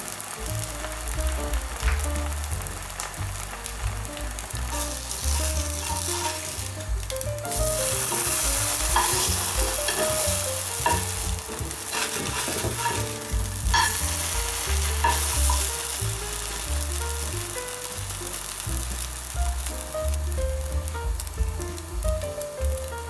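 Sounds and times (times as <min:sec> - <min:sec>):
bread sizzling in oil: 0:00.0 - 0:06.9, 0:07.5 - 0:22.0
metal spatula scraping a pan: 0:08.1 - 0:11.2, 0:11.9 - 0:14.0, 0:14.9 - 0:15.6.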